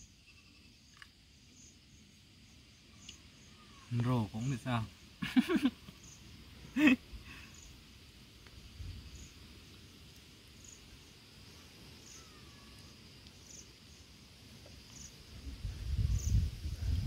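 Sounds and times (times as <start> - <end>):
faint high chirp: 0.0 - 1.0
insects trilling: 0.0 - 17.0.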